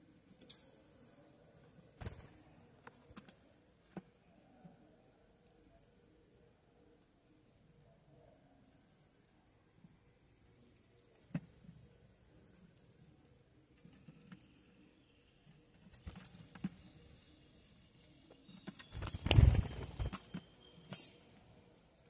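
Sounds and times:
bird wingbeats flurry: 0:02.0 - 0:02.4, 0:18.8 - 0:21.1.

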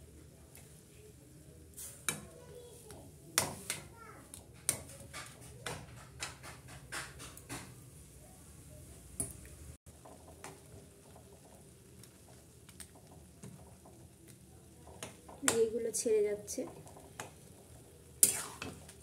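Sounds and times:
metal spatula scraping a pan: 0:01.8 - 0:02.3, 0:16.6 - 0:19.0
spatula tapping: 0:02.0 - 0:07.8, 0:10.0 - 0:19.0.

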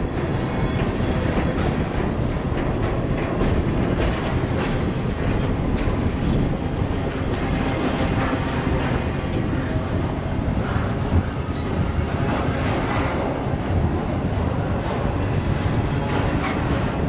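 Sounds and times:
train wheels rumbling on rail: 0:00.0 - 0:17.0
clicks and clanks: 0:00.8 - 0:09.7.

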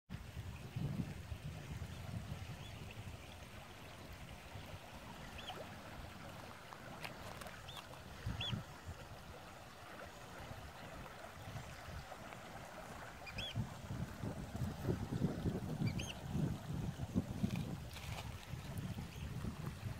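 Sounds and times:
wind on microphone: 0:00.1 - 0:19.9
river rushing over gravel: 0:04.0 - 0:08.3, 0:08.9 - 0:19.9.

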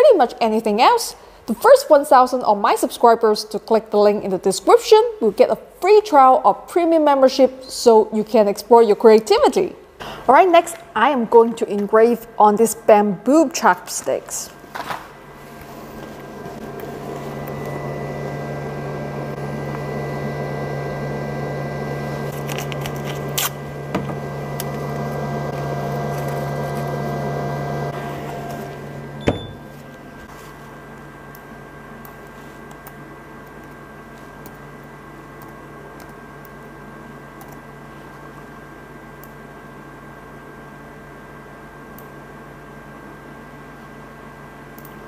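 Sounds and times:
fan humming: 0:07.1 - 0:45.0.

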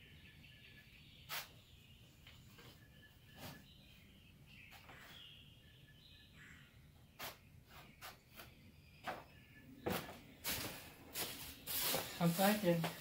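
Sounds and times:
faint bird chirps: 0:00.0 - 0:12.4
footsteps on concrete: 0:09.0 - 0:13.0.

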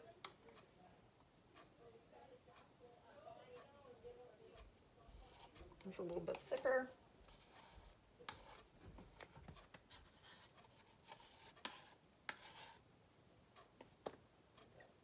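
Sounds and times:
stir stick scraping plastic cup: 0:05.1 - 0:08.7, 0:09.6 - 0:12.8.

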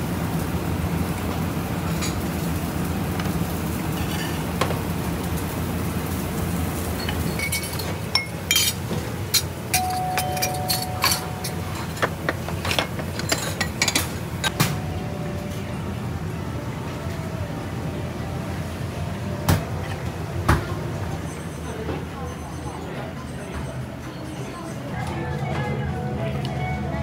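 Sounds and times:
low kitchen hum: 0:00.0 - 0:27.0
dishes and utensils clinking: 0:07.0 - 0:14.7.

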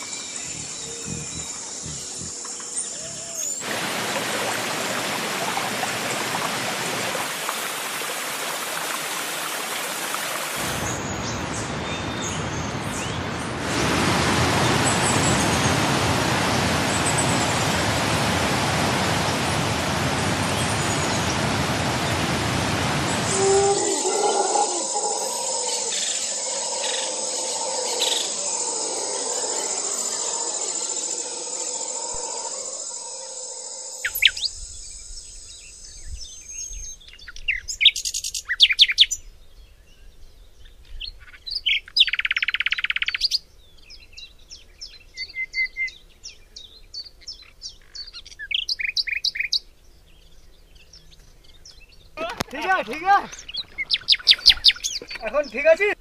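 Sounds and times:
birds chirping and calling: 0:00.0 - 0:03.7, 0:23.2 - 0:32.6, 0:34.0 - 0:34.7, 0:40.6 - 0:56.0.

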